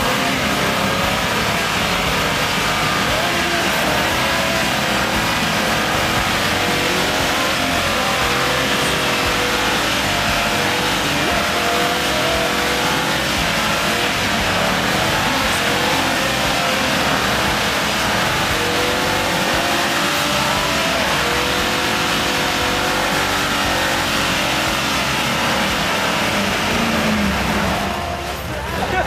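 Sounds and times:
engine revving under load: 0.0 - 29.0.

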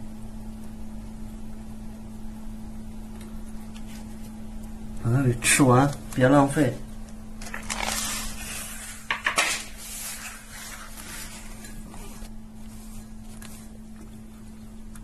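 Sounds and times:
steady low hum: 0.0 - 15.0
rustling: 7.4 - 14.6.

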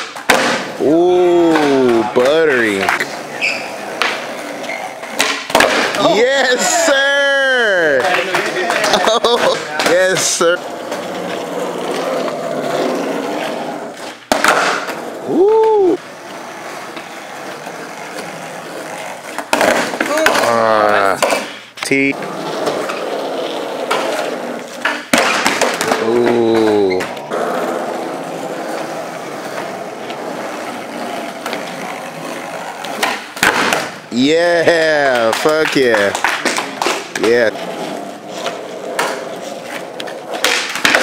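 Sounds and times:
skateboard clacking on floor: 0.0 - 0.8, 3.8 - 6.0, 8.0 - 13.0, 14.0 - 15.8, 22.2 - 34.0, 34.7 - 41.0
skateboard landing clack: 0.0 - 0.8, 5.1 - 6.0, 14.2 - 15.0, 24.8 - 27.3, 32.8 - 34.0, 40.3 - 41.0
skateboard wheels rolling: 0.0 - 21.5, 22.1 - 41.0
skateboard tail pop: 14.3 - 14.9, 33.0 - 34.0
whoop: 15.3 - 16.0.

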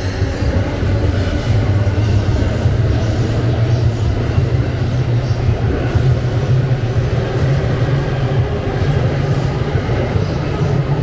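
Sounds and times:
electric train rolling past: 0.0 - 11.0.

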